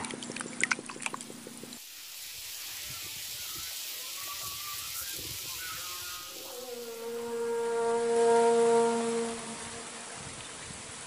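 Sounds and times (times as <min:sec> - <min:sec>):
outdoor hiss: 0:01.0 - 0:11.0
held wind instrument note: 0:02.8 - 0:10.4.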